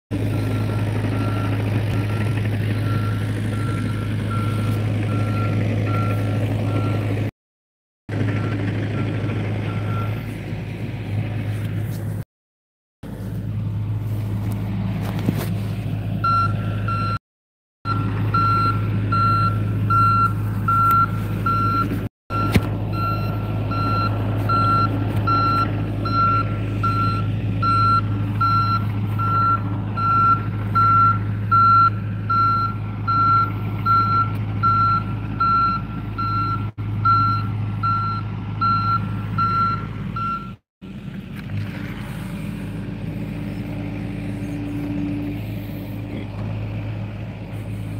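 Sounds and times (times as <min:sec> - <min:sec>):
excavator diesel engine running: 0:00.1 - 0:07.3, 0:08.1 - 0:12.2, 0:13.0 - 0:17.2, 0:17.9 - 0:47.9
backup alarm beeping: 0:16.2 - 0:17.2, 0:17.9 - 0:40.6.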